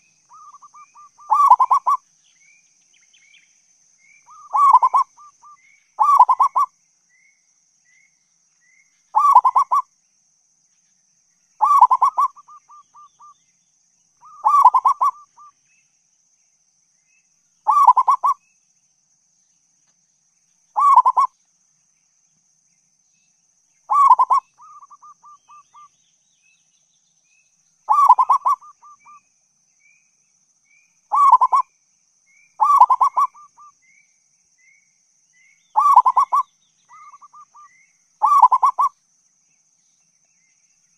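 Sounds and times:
dove cooing: 0:00.0 - 0:02.0, 0:04.3 - 0:06.7, 0:09.2 - 0:09.8, 0:11.6 - 0:13.3, 0:14.2 - 0:15.5, 0:17.7 - 0:18.4, 0:20.8 - 0:21.3, 0:23.9 - 0:25.9, 0:27.9 - 0:29.2, 0:31.1 - 0:31.6, 0:32.6 - 0:33.7, 0:35.8 - 0:38.9.

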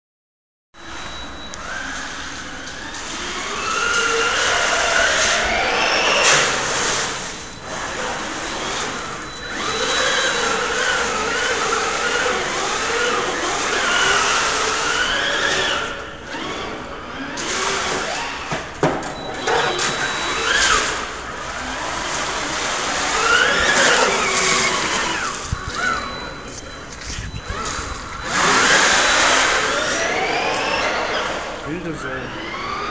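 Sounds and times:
toy car motor whine: 0:00.9 - 0:18.5, 0:19.4 - 0:32.9.

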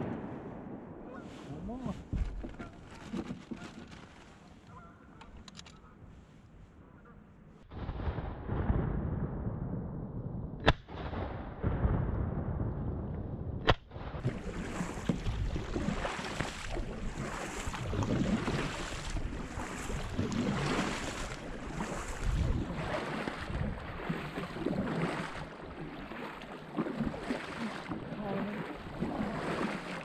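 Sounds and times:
wind: 0:00.0 - 0:30.0
paddle strokes splashing: 0:01.1 - 0:05.4, 0:14.2 - 0:30.0
rushing water: 0:14.2 - 0:30.0.

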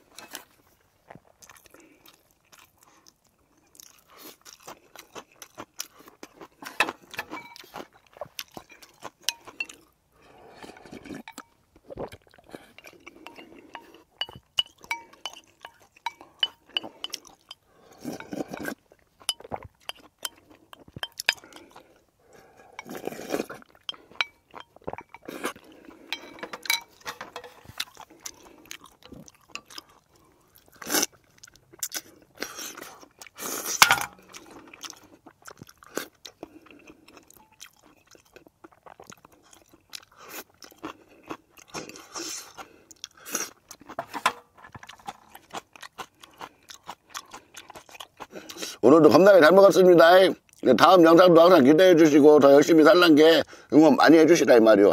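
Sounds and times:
chewing and crunching food: 0:00.0 - 0:54.9
metal spoon clinking bowls: 0:07.2 - 0:07.7, 0:10.8 - 0:11.6, 0:12.8 - 0:17.6, 0:19.3 - 0:20.4, 0:21.0 - 0:21.6, 0:23.8 - 0:25.4, 0:26.1 - 0:27.7, 0:33.8 - 0:34.3.

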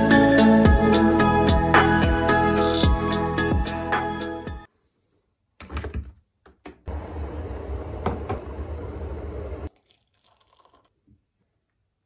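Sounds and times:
background music: 0:00.0 - 0:04.7
electric kettle heating water: 0:06.9 - 0:10.9
kettle knock: 0:08.0 - 0:08.5.

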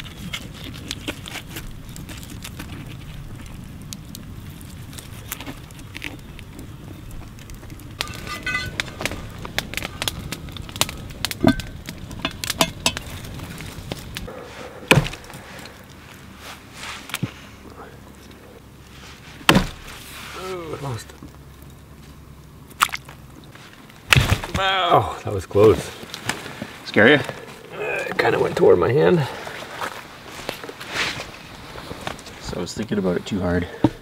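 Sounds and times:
axe chopping meat on a log: 0:14.9 - 0:15.2, 0:19.5 - 0:19.8.

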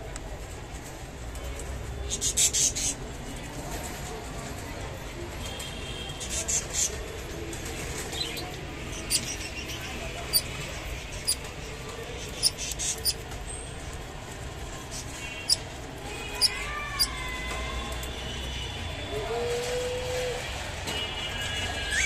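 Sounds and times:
soft bird chirps: 0:08.2 - 0:10.5, 0:12.2 - 0:13.2.

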